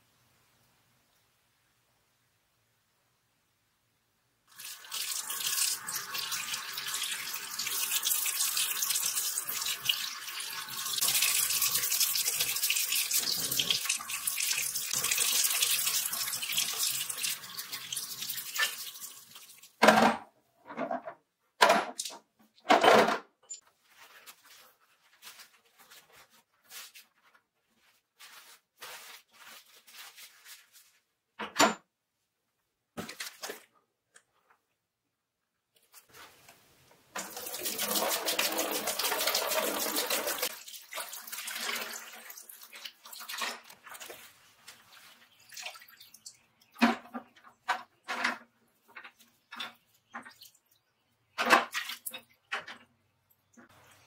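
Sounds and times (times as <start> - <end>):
tap water running into sink: 4.5 - 19.8, 37.1 - 44.2.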